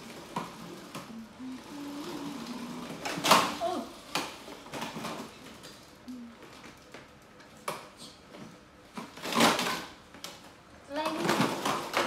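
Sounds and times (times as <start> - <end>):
plastic toy car clattering on tiles: 2.9 - 5.8, 8.9 - 10.4, 11.0 - 12.0.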